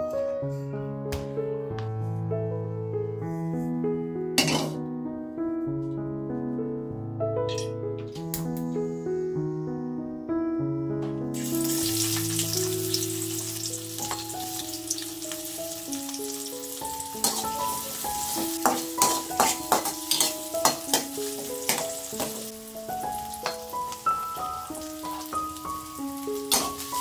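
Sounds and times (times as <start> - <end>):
onions sizzling in hot oil: 11.4 - 27.0
metal spatula scraping wok: 17.1 - 22.5, 26.4 - 27.0.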